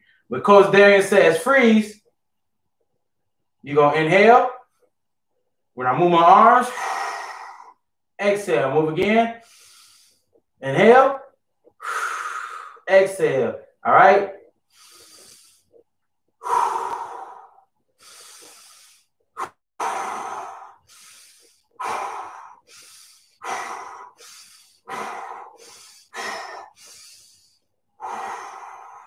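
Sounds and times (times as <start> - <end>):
man breathing deeply: 6.6 - 7.9, 9.4 - 10.4, 11.7 - 12.9, 14.6 - 29.0.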